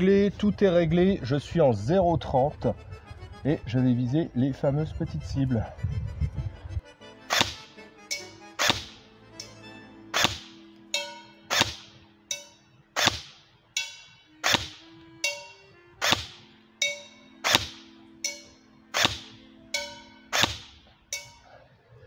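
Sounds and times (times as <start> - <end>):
airsoft rifle shots: 7.3 - 12.0, 13.0 - 14.9, 15.5 - 17.9, 18.9 - 20.9
metallic target ringing: 7.3 - 21.5.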